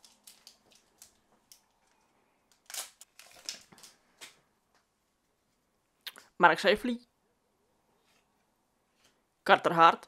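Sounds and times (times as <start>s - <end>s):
foil wrapper tearing and crinkling: 2.6s - 4.0s.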